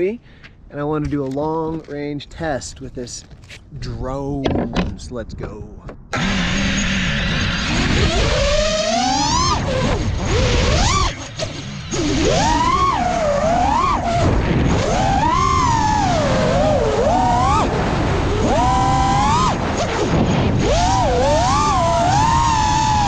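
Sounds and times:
wind noise: 0.8s - 23.0s
quadcopter motors whining: 6.1s - 23.0s.

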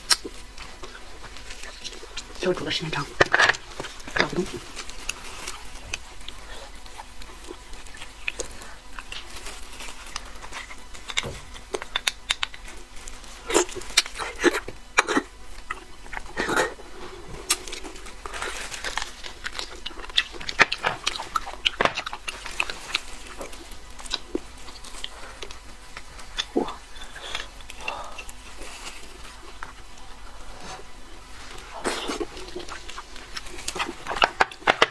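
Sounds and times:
biting and chewing bone: 3.2s - 16.4s, 17.4s - 28.6s, 31.7s - 34.9s.

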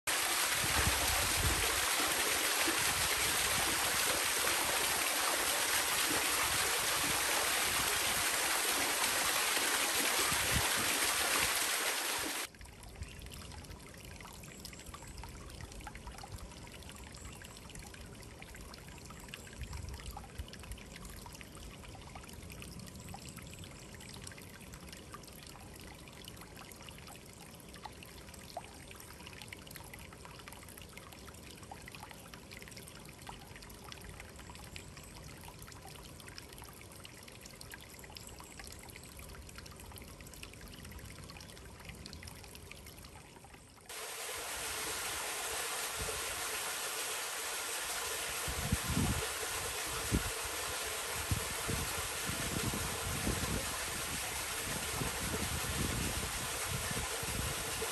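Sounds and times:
rush of water: 0.0s - 12.6s, 43.9s - 57.9s
water trickling over rocks: 0.0s - 57.9s
water dripping: 0.1s - 57.9s.

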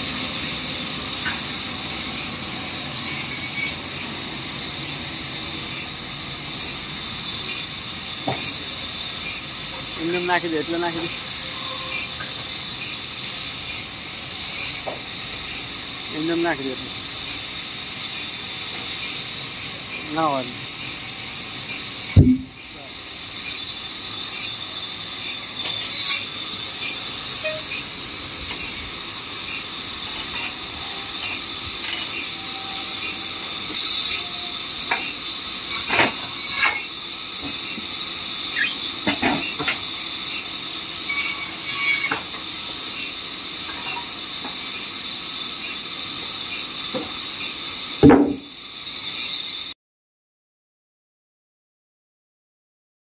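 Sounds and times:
sawmill machinery hissing: 0.0s - 49.8s
sharp knocks: 22.2s - 22.6s.

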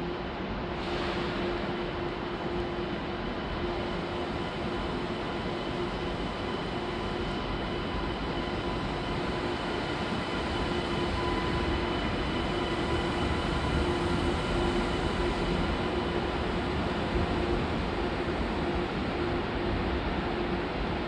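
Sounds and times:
electric train rumbling: 0.0s - 21.0s.

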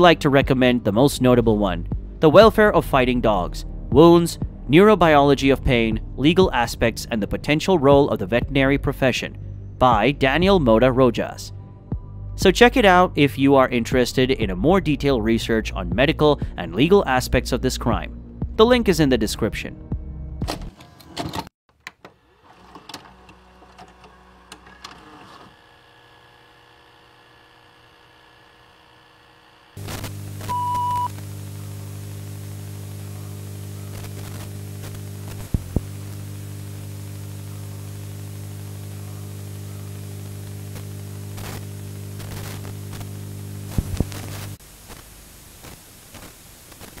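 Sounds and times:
electrical hum with hiss: 23.4s - 47.0s
crackles and clicks: 29.8s - 47.0s
short high beep: 30.5s - 31.1s.

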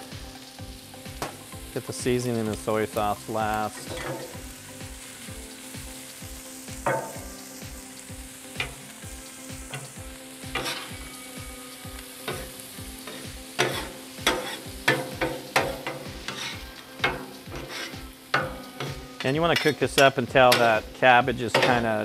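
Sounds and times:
vegetables sizzling on a griddle: 0.0s - 22.0s
metal spatulas scraping griddle: 3.8s - 4.4s, 10.5s - 11.0s, 12.3s - 20.8s.

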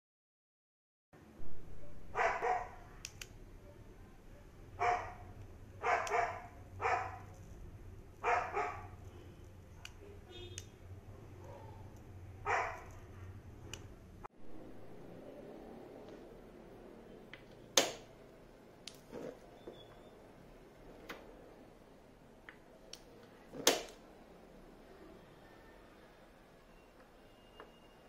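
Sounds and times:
dog barking: 2.1s - 2.9s, 4.8s - 7.3s, 8.2s - 9.0s, 11.4s - 13.3s.

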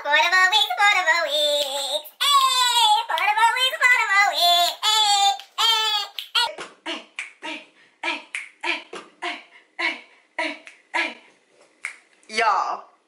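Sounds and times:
woman singing: 0.0s - 6.2s
woman's rhythmic vocal sounds: 0.9s - 12.1s.

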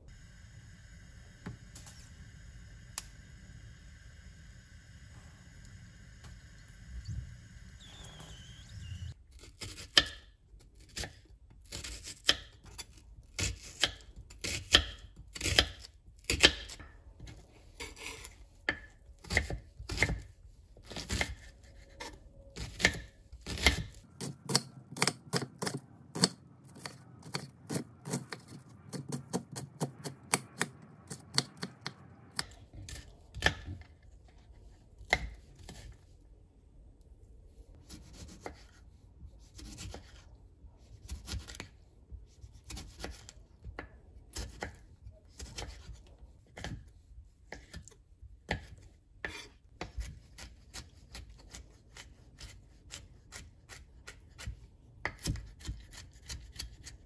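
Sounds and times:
knife chopping on wooden board: 18.7s - 20.3s, 48.5s - 56.8s.

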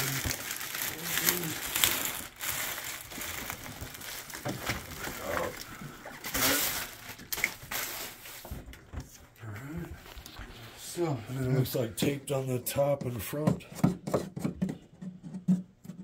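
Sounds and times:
plastic wrap crinkling: 0.0s - 8.6s.

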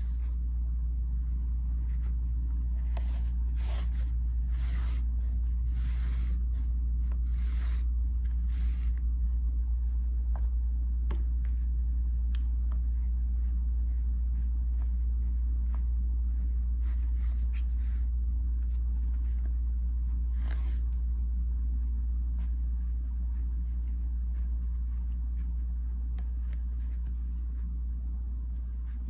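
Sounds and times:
low hum: 0.0s - 29.0s.

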